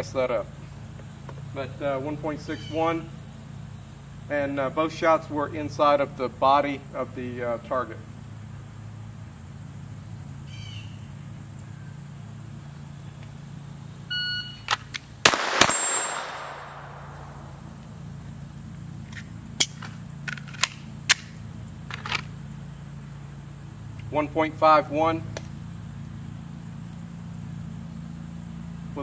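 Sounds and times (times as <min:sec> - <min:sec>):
pistol shots with echo: 0:15.2 - 0:17.6.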